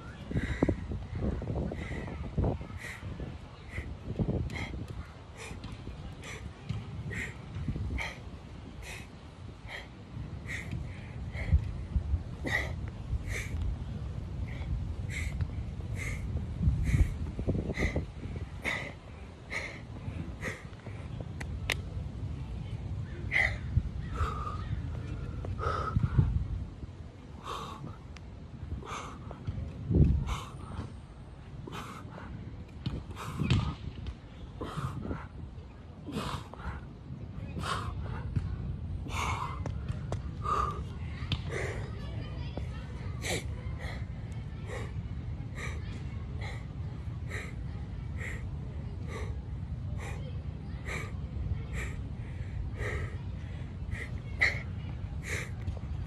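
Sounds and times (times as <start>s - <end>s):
steady low rumble: 0.0s - 56.0s
man breathing hard: 0.3s - 2.2s, 3.6s - 5.6s, 6.2s - 8.2s, 8.8s - 11.7s, 12.4s - 13.6s, 14.4s - 21.0s, 27.4s - 28.0s, 28.8s - 29.4s, 30.2s - 30.9s, 31.6s - 32.4s, 36.1s - 36.9s, 37.6s - 38.2s, 39.0s - 39.7s, 40.4s - 40.9s, 47.3s - 47.6s, 48.2s - 48.4s, 49.0s - 49.4s, 50.0s - 50.2s, 51.7s - 54.6s.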